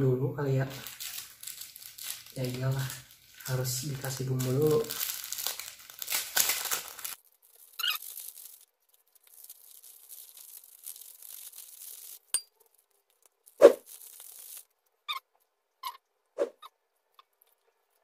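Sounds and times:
foil sachets tearing and crinkling: 0:00.5 - 0:14.8
seasoning hissing rustle: 0:00.7 - 0:07.1, 0:07.7 - 0:14.7.

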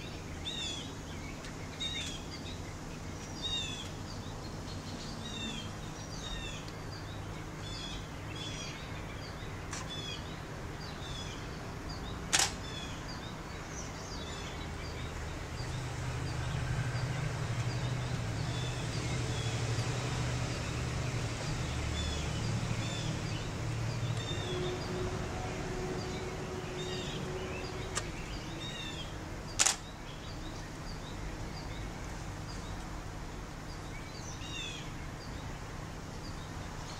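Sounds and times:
small birds chirping: 0:00.0 - 0:36.9
sharp click: 0:12.3 - 0:12.6, 0:29.6 - 0:29.9.

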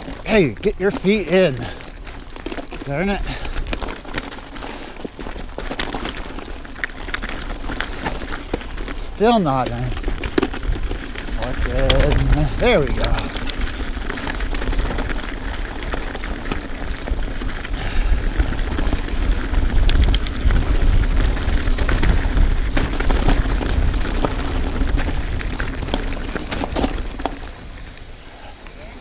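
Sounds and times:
bike clicks and rattles on trail: 0:00.0 - 0:29.0
wind buffeting microphone: 0:06.2 - 0:29.0.

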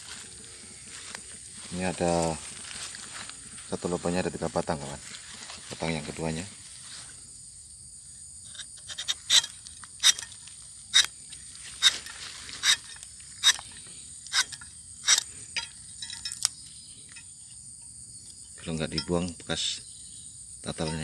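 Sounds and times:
knife scraping tree bark: 0:08.4 - 0:17.6.

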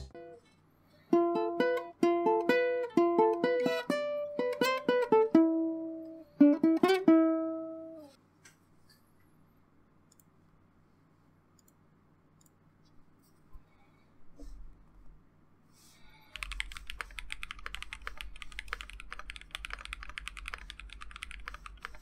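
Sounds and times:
plucked string melody: 0:00.0 - 0:00.4, 0:01.1 - 0:08.1
faint low hum: 0:00.0 - 0:22.0.

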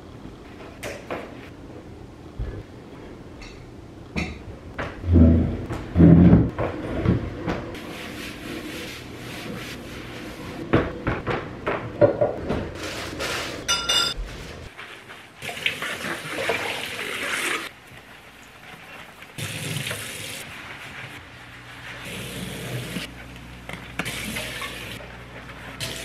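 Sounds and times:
dishes and cutlery clattering: 0:13.6 - 0:14.2
kitchen tap running: 0:19.4 - 0:20.4.

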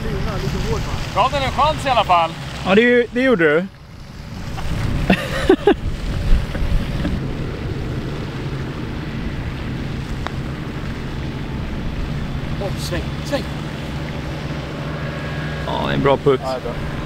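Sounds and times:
distant engine hum: 0:00.0 - 0:17.0
wind noise on microphone: 0:03.9 - 0:17.0.

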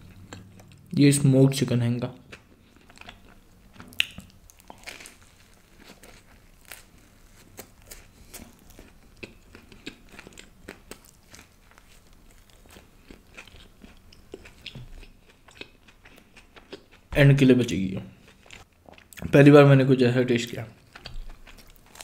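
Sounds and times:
crunchy bread chewing: 0:02.3 - 0:17.1, 0:20.8 - 0:22.0.

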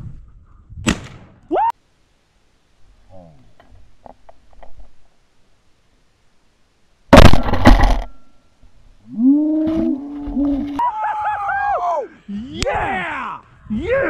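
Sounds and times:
people whooping and yelling: 0:10.7 - 0:13.4.

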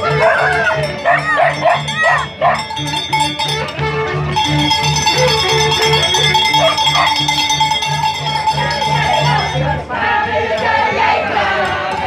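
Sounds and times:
drum beating steadily: 0:00.0 - 0:09.8
short melody: 0:02.3 - 0:09.7.

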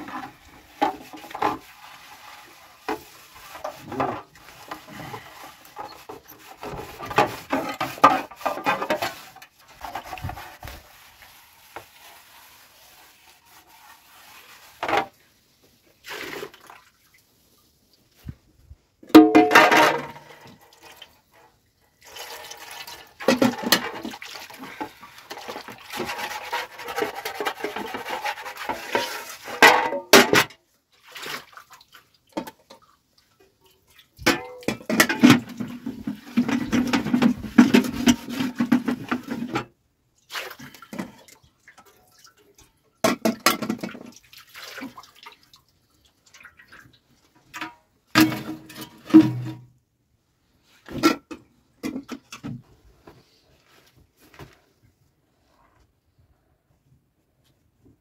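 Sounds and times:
metal tray and pots clinking: 0:19.2 - 0:20.3.

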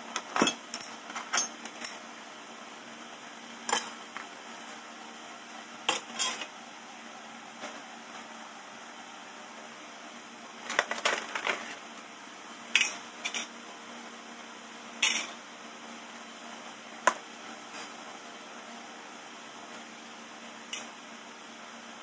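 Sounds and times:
metal parts clattering on workbench: 0:00.2 - 0:02.0, 0:03.7 - 0:04.0, 0:05.9 - 0:06.5, 0:10.7 - 0:11.8, 0:12.8 - 0:13.5, 0:15.0 - 0:15.4.

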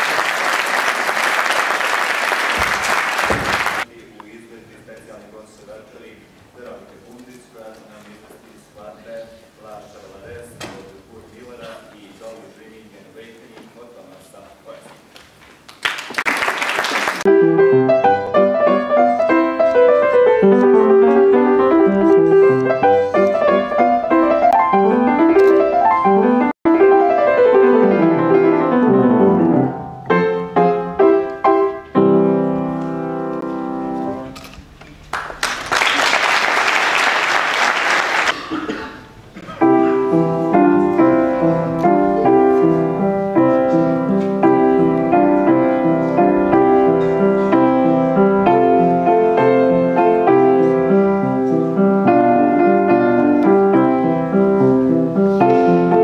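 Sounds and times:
audience applause: 0:00.0 - 0:03.9, 0:15.7 - 0:17.3, 0:35.1 - 0:38.4
solo piano playing: 0:17.2 - 0:34.3, 0:39.6 - 0:56.0.

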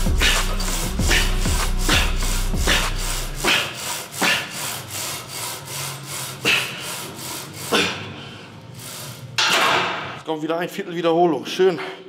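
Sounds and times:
background music with bass: 0:00.0 - 0:03.5
rhythmic rasping strokes: 0:00.0 - 0:09.4.

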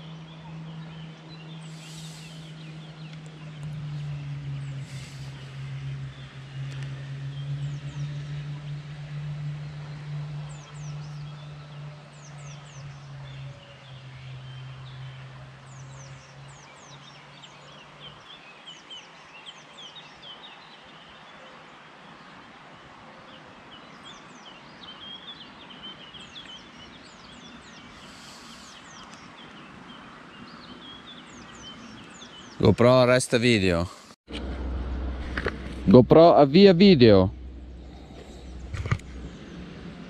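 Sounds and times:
songbirds chirping: 0:00.0 - 0:34.2, 0:35.8 - 0:40.0
outdoor hiss: 0:01.6 - 0:02.6, 0:27.9 - 0:28.8
low steady hum: 0:34.3 - 0:40.0.

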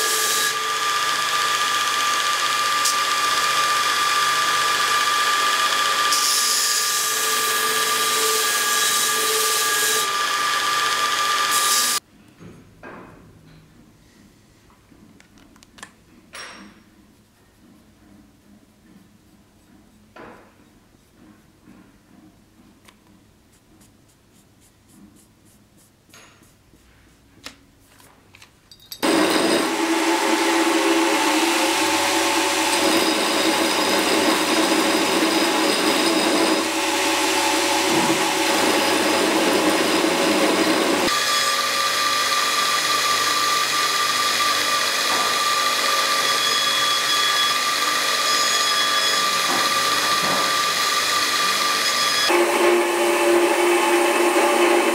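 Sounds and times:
belt grinder grinding metal: 0:00.0 - 0:12.0, 0:29.0 - 0:54.9.

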